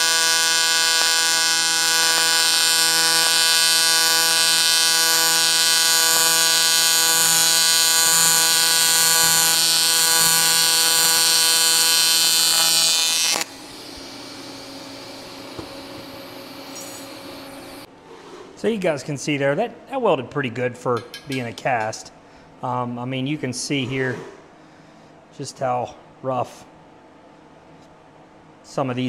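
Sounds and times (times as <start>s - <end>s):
welding arc buzzing: 0.0s - 17.9s
faint hum: 0.0s - 29.0s.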